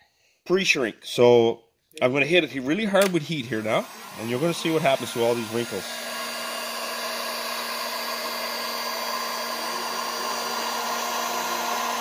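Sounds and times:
heat gun blowing air: 3.0s - 12.0s.

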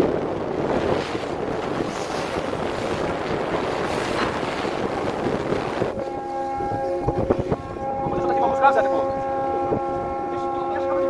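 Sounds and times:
sea water splashing against hull: 0.0s - 11.0s
wind buffeting microphone: 0.0s - 11.0s.

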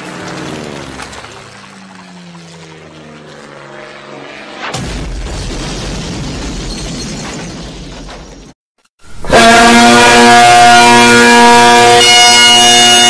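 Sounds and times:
cartoon explosion boom: 4.6s - 7.0s.

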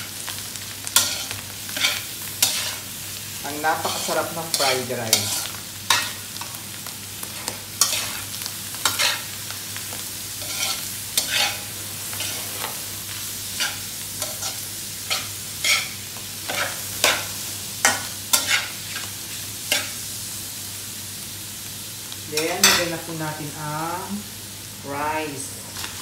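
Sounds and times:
food sizzling in frying pan: 0.0s - 26.0s
spatula scraping pan: 1.0s - 2.9s, 3.7s - 6.5s, 7.2s - 9.3s, 10.4s - 20.0s.

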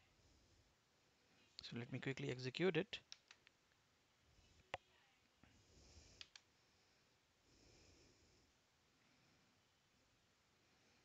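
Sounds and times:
computer mouse clicking: 3.0s - 3.8s, 6.1s - 6.5s.

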